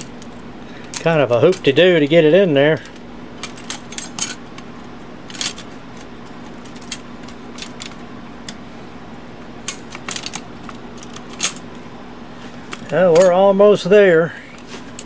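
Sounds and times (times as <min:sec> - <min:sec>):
steady low hum: 0:00.0 - 0:15.0
typewriter parts clinking: 0:05.3 - 0:08.0, 0:09.7 - 0:11.6.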